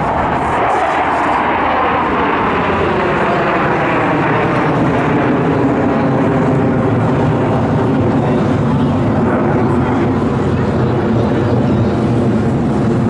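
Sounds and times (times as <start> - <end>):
fighter jets roaring overhead: 0.0 - 13.0.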